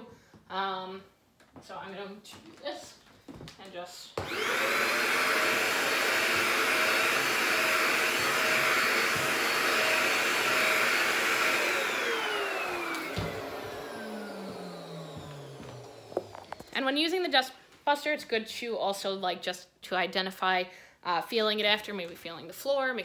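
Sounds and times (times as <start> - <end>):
handheld vacuum running: 4.2 - 16.8
vacuum motor winding down: 4.2 - 16.8.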